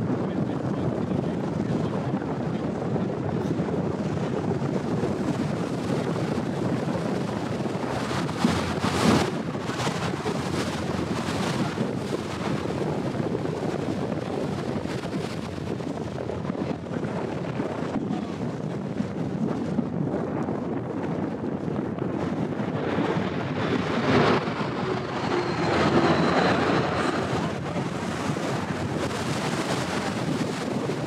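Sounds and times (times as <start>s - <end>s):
wind buffeting microphone: 0.0s - 31.0s
boat engine: 2.6s - 31.0s
water rushing: 5.2s - 18.9s, 22.1s - 31.0s.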